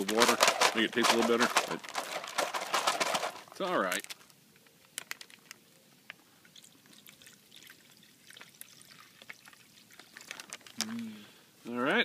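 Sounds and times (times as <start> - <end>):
liquid trickling into cup: 6.4 - 10.8.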